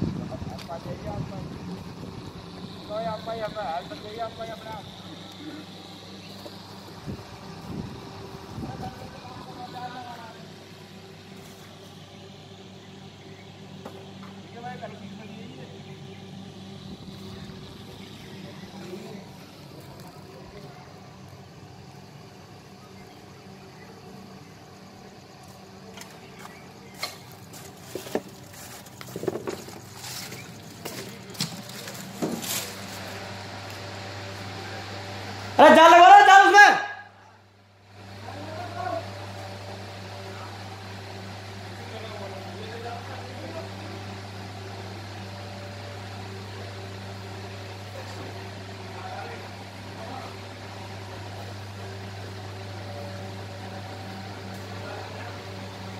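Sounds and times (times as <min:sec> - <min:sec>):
low hum: 0:00.0 - 0:25.2
low electrical hum: 0:00.0 - 0:55.9
footsteps on wood debris: 0:26.4 - 0:33.8.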